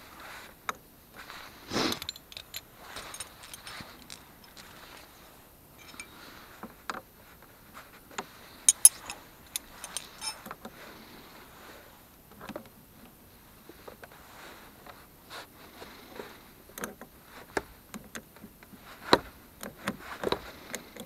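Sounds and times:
rustling: 0:01.2 - 0:06.4, 0:08.5 - 0:10.4
small metal clicks and taps: 0:05.8 - 0:06.1, 0:08.7 - 0:10.4.

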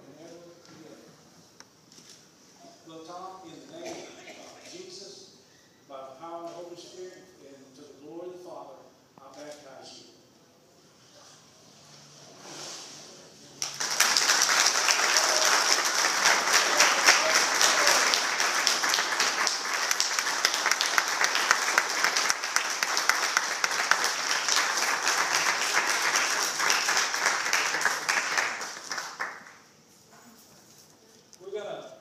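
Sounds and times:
congregation clapping: 0:13.6 - 0:29.7.

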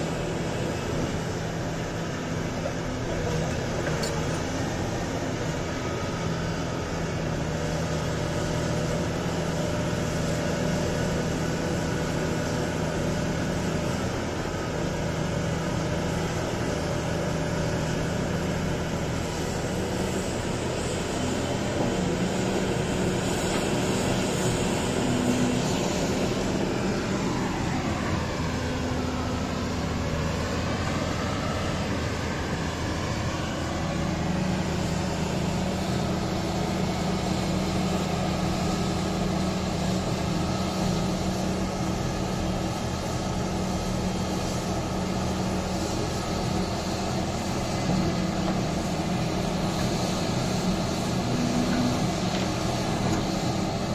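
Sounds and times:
excavator diesel engine and hydraulics: 0:00.0 - 0:53.9
hydraulic whine: 0:38.6 - 0:53.9.

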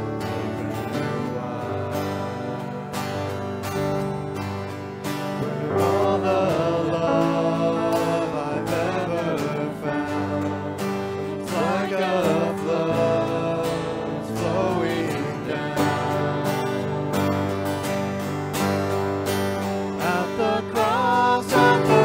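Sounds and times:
people singing: 0:00.0 - 0:22.0
worship band playing: 0:00.0 - 0:22.0.

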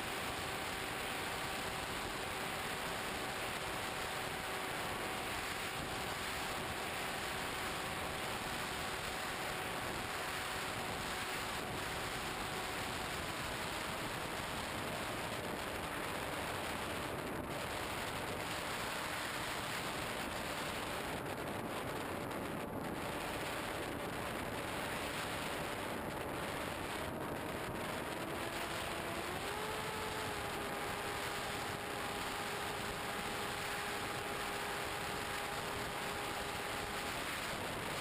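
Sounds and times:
model plane motor whine: 0:00.0 - 0:38.0
rushing wind: 0:00.0 - 0:38.0.

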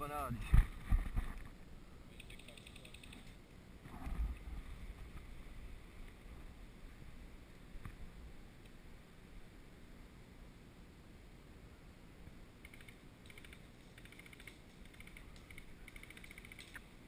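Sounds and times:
faint evenly spaced ticks: 0:02.1 - 0:03.6, 0:12.6 - 0:17.0.

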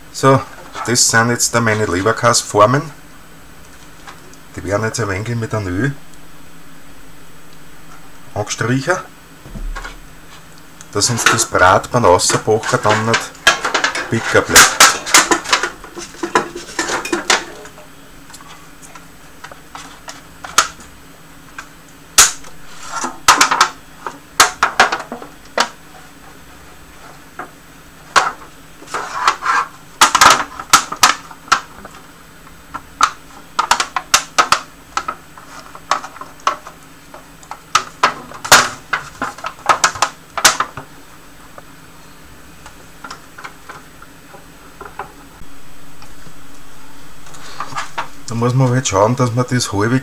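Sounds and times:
foil pans clicking and crinkling: 0:09.7 - 0:20.9, 0:21.5 - 0:32.1, 0:32.7 - 0:40.9.

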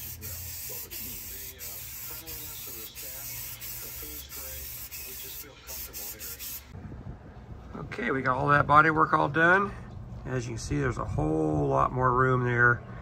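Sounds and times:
spray paint can hissing: 0:00.0 - 0:06.7.

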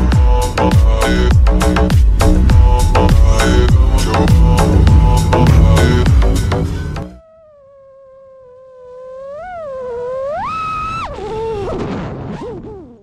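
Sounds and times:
music with heavy beat: 0:00.0 - 0:07.2.

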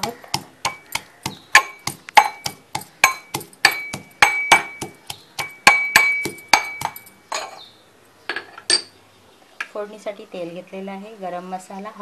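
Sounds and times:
metal pestle pounding in mortar: 0:00.0 - 0:07.1.

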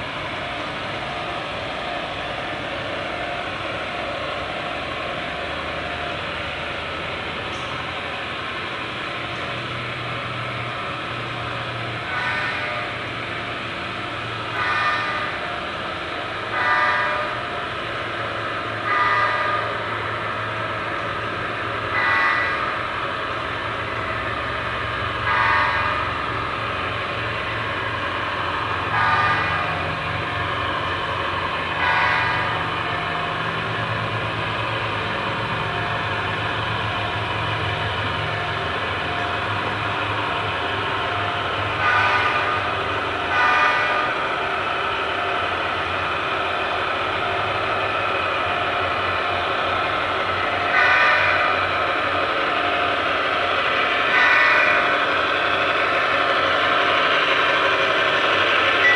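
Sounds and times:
model locomotive horn blasts: 0:12.1 - 0:13.0, 0:14.6 - 0:15.4, 0:16.5 - 0:17.4, 0:18.8 - 0:19.8, 0:21.9 - 0:22.8, 0:25.2 - 0:26.2, 0:28.9 - 0:29.9, 0:31.8 - 0:32.6, 0:41.8 - 0:44.2, 0:50.7 - 0:51.7, 0:54.1 - 0:54.9.

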